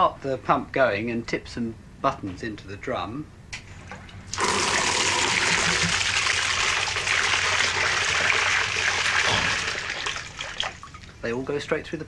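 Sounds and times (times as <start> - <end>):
water gushing into a sieve: 4.3 - 11.1.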